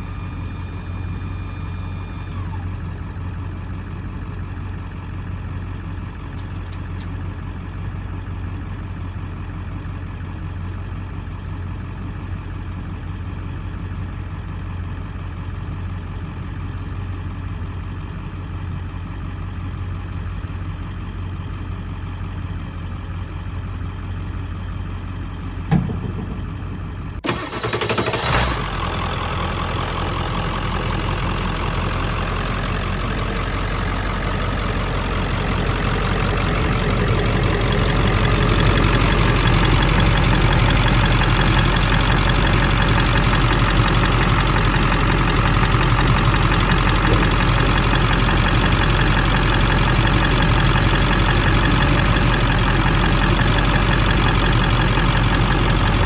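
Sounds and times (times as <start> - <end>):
truck engine idling: 0.0 - 56.0.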